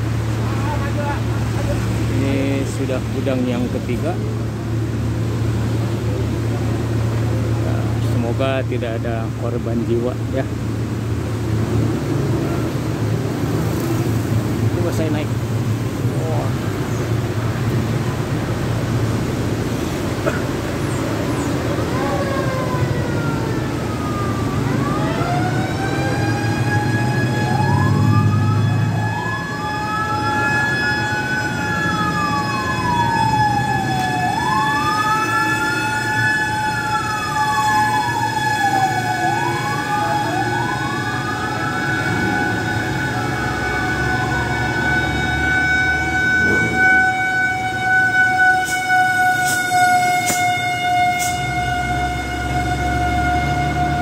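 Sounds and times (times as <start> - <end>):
engines rumbling: 0.0 - 54.0
wailing siren: 20.9 - 54.0
siren holding steady tone: 21.3 - 54.0.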